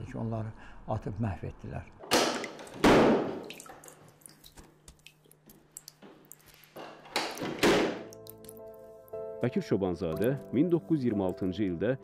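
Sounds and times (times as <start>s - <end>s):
water dripping: 2.0s - 9.2s, 10.0s - 11.6s
loud echoing impacts: 2.2s - 3.5s.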